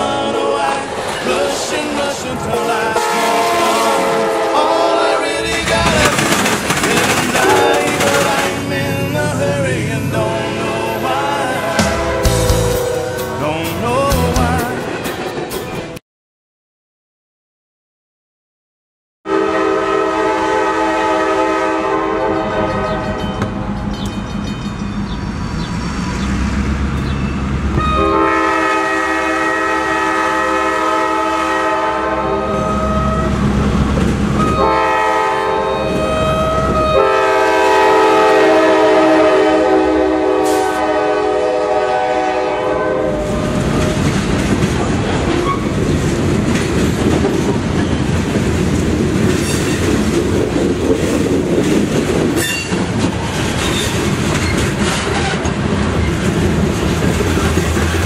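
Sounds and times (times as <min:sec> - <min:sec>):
locomotive engine rumbling: 0:00.0 - 0:16.0, 0:19.5 - 0:58.0
diesel locomotive horn blasts: 0:02.5 - 0:05.4, 0:07.4 - 0:09.4, 0:10.4 - 0:13.7, 0:19.3 - 0:23.6, 0:27.8 - 0:33.6, 0:34.4 - 0:44.2
freight cars clattering over rails: 0:05.4 - 0:10.0, 0:43.3 - 0:58.0.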